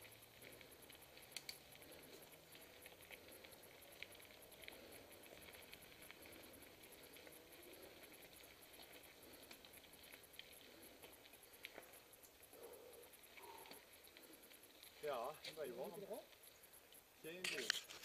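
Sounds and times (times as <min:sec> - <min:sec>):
bike tyres crunching on dirt trail: 0:00.0 - 0:18.0.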